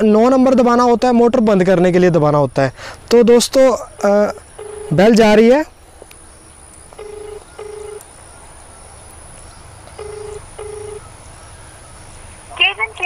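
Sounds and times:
telephone ringback tone: 4.6s - 5.0s, 7.0s - 8.0s, 10.0s - 11.0s.

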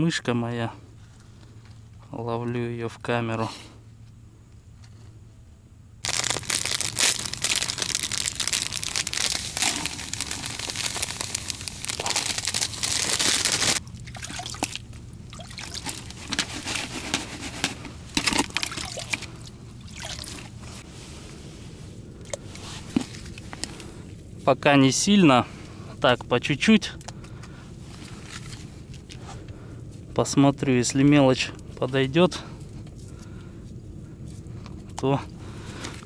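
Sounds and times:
packaging crinkling: 6.0s - 13.8s
rustling: 6.0s - 13.8s, 15.7s - 18.7s
bait trickling and pouring: 6.0s - 16.4s, 18.2s - 20.6s.

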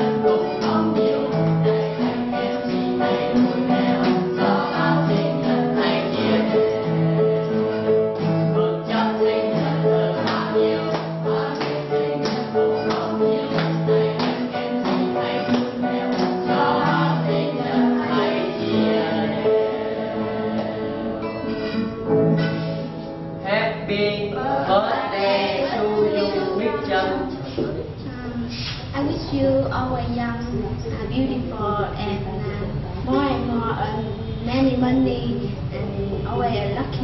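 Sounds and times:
group of people singing: 0.0s - 21.9s, 24.2s - 28.0s
strummed acoustic guitar: 0.0s - 29.3s
piano: 0.0s - 37.0s.

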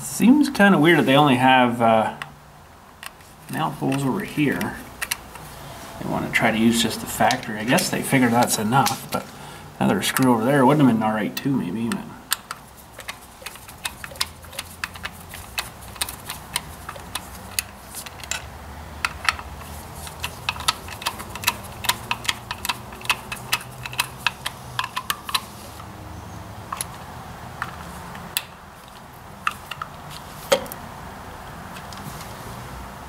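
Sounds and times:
screwdriver metallic clicks: 11.4s - 25.5s, 29.4s - 29.9s.

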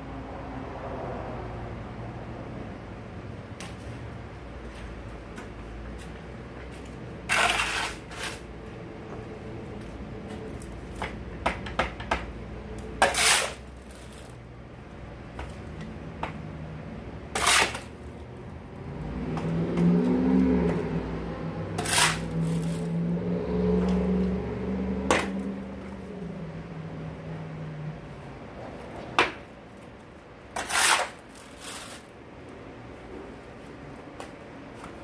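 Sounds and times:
shovel scraping concrete floor: 6.8s - 8.5s, 13.0s - 14.4s, 17.3s - 18.2s, 21.7s - 22.9s, 25.1s - 25.4s, 30.5s - 32.2s.

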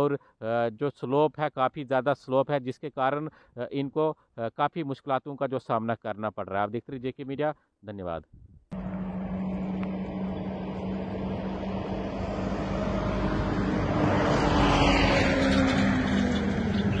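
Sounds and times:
motor hum: 8.8s - 13.9s.

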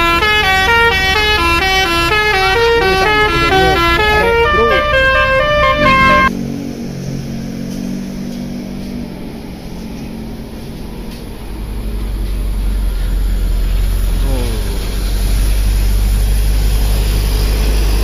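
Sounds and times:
bus horn melody: 0.0s - 6.3s
bus engine rumbling: 0.0s - 18.0s.

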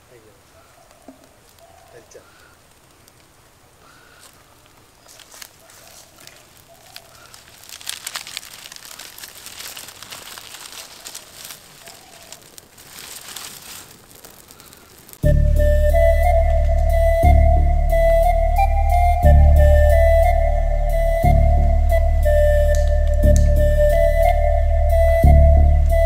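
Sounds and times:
palm leaves crackling in fire: 0.0s - 26.0s
music: 15.2s - 26.0s.

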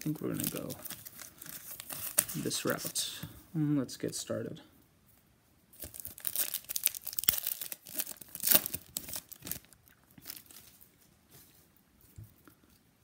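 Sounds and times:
foil wrapper tearing and crinkling: 0.0s - 2.9s, 5.8s - 10.8s
wrapper rustling: 0.0s - 3.2s, 5.7s - 11.6s.

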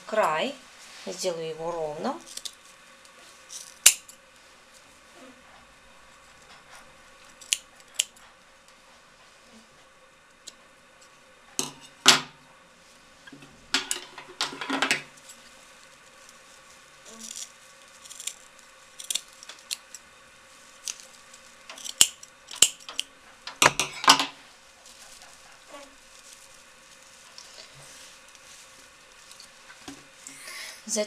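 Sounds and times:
scissors snipping burlap: 19.0s - 20.0s, 20.8s - 23.8s.

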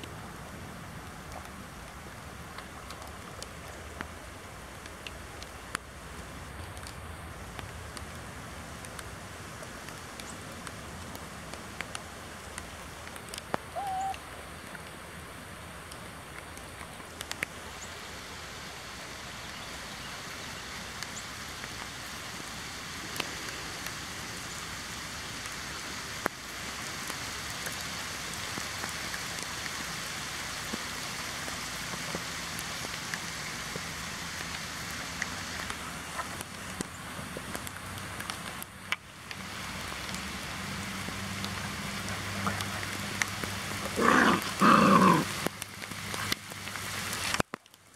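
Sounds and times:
rain falling on grass: 0.0s - 47.9s.

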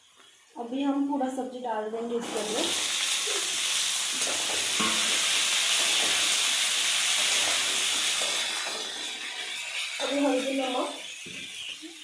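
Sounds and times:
vegetables sizzling in oil: 2.1s - 12.0s
metal spatula scraping a pan: 4.2s - 6.2s.

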